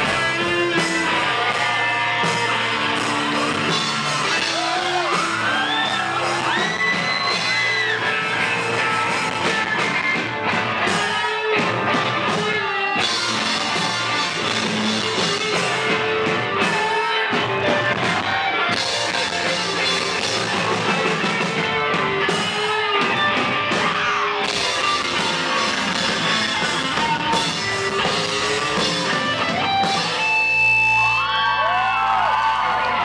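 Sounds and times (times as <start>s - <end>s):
drum kit: 0.0s - 33.0s
live rock band playing: 0.0s - 33.0s.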